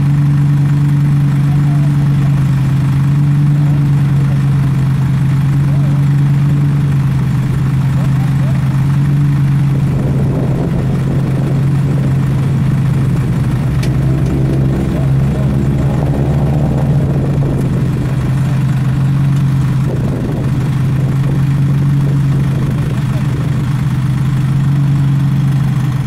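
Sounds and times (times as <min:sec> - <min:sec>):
vehicle engine idling: 0:00.0 - 0:26.0.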